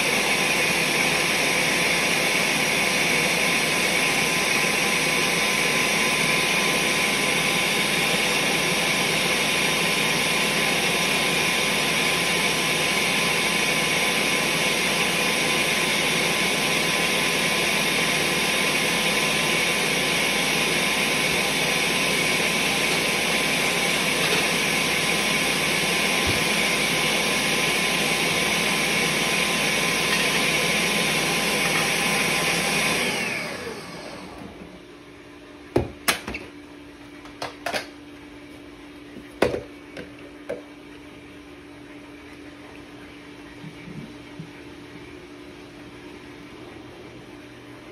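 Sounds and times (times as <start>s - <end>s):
blender running: 0.0s - 34.9s.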